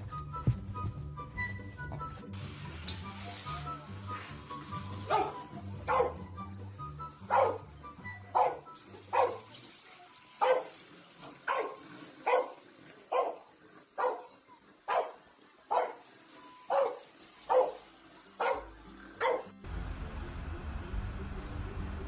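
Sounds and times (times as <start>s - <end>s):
dog barking: 5.1s - 6.3s, 7.3s - 7.7s, 8.3s - 9.5s, 10.4s - 10.7s, 11.4s - 16.0s, 16.7s - 19.5s.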